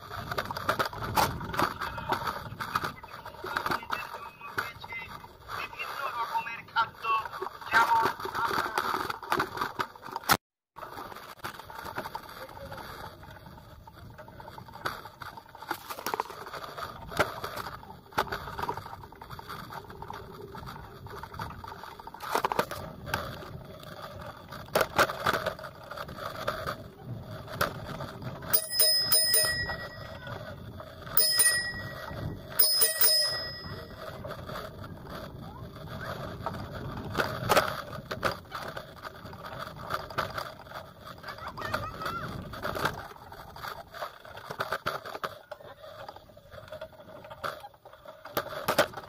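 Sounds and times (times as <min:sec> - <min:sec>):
bicycle rattling over dirt: 0:00.0 - 0:49.0
bicycle bell trills: 0:28.5 - 0:34.3.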